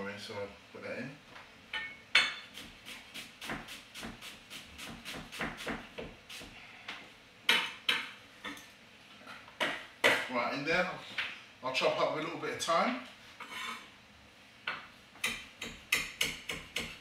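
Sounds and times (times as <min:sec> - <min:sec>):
knife chopping on wooden board: 0:03.3 - 0:04.2, 0:04.8 - 0:06.2, 0:15.2 - 0:17.0.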